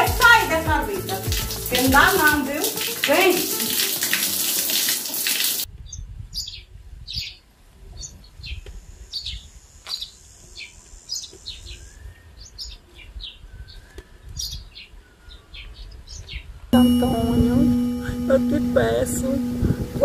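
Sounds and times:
shower water running: 0.0s - 5.7s, 16.8s - 20.0s
low rumble: 16.8s - 20.0s.

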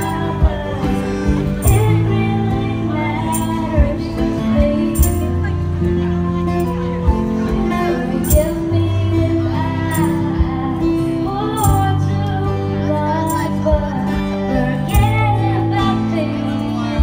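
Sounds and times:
acoustic guitar: 0.0s - 17.0s
woman singing into a microphone: 0.0s - 17.0s.

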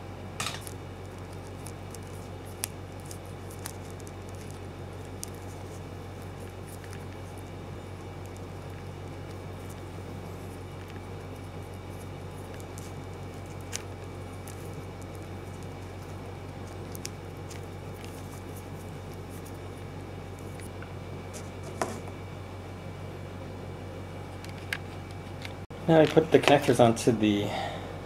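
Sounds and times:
room hum and hiss: 0.0s - 28.0s
tape and wire clicks and rustles: 0.4s - 22.0s.

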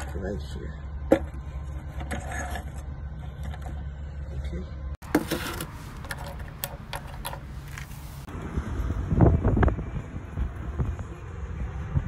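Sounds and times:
low rumble: 7.5s - 12.0s.

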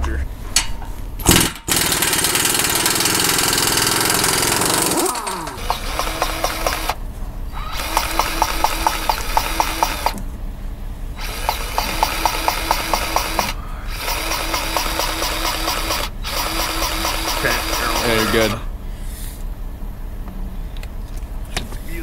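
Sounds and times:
low motor hum: 0.0s - 22.0s
loud machine winding down: 1.3s - 10.2s, 11.2s - 18.7s
grease gun clicking: 11.3s - 18.3s.

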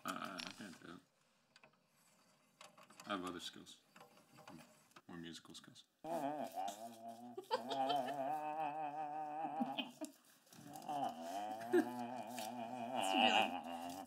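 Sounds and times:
man humming a tune: 6.0s - 14.0s.

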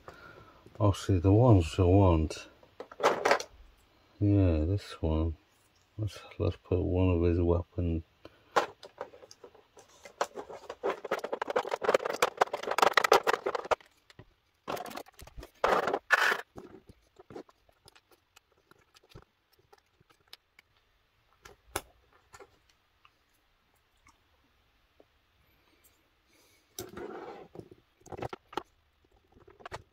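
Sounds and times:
plastic rattling and crinkling: 2.6s - 3.6s, 8.5s - 23.2s, 26.8s - 29.9s.

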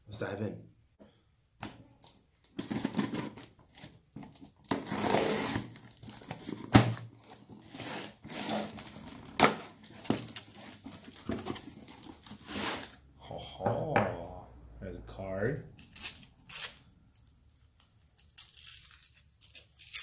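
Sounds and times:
knife slitting packing tape: 4.7s - 6.3s, 15.8s - 16.9s, 18.0s - 20.0s.

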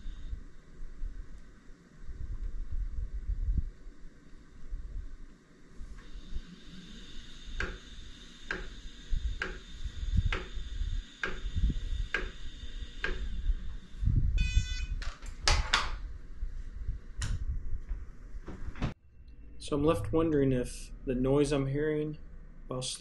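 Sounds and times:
high motor whine: 0.0s - 15.2s.

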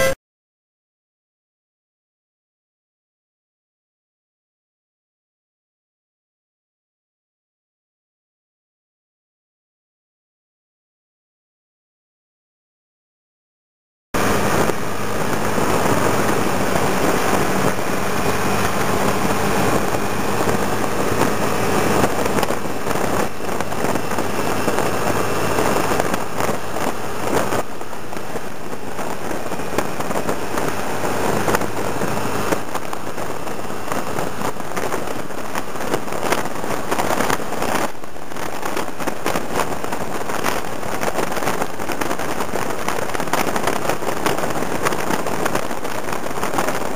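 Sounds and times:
scooter engine hum: 14.2s - 46.9s
wind buffeting microphone: 14.2s - 46.9s.

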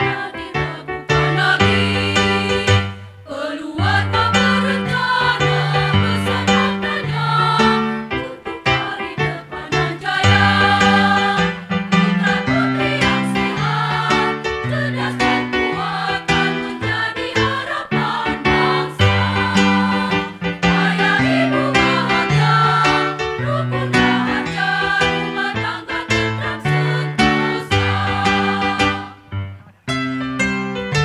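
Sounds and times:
women's choir singing a march: 0.0s - 29.2s
instrumental accompaniment with bass: 9.3s - 31.0s.

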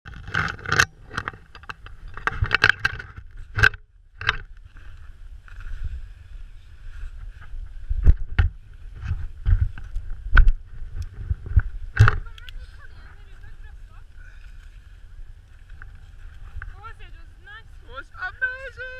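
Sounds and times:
snow crunching: 10.7s - 18.9s.

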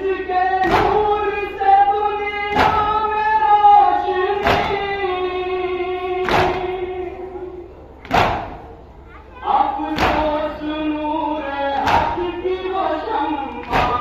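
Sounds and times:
hands slapping chests in unison: 0.6s - 1.0s, 2.5s - 2.9s, 4.4s - 4.8s, 6.2s - 6.8s, 8.0s - 8.7s, 10.0s - 10.2s, 11.8s - 12.2s, 13.6s - 14.0s.

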